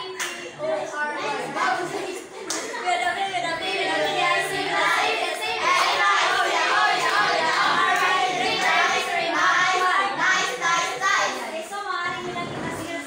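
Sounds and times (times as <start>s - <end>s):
students chanting in unison: 3.4s - 11.5s.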